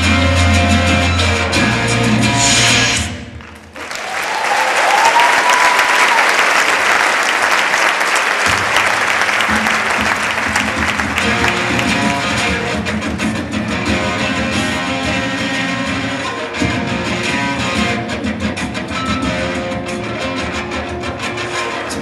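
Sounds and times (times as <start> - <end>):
band playing: 0.0 - 3.4, 7.0 - 22.0
audience applauding: 3.4 - 12.8.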